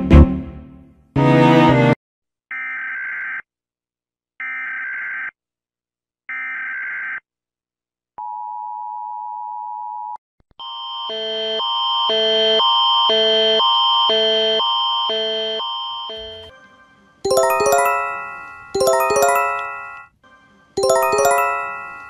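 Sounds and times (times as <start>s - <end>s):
alternating chime-like alarm chords: 17.3s - 20.1s, 20.8s - 22.0s.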